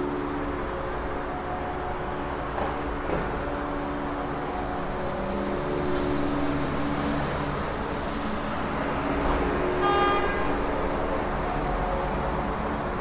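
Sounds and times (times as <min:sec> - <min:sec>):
car horn toot: 0:09.8 - 0:10.4.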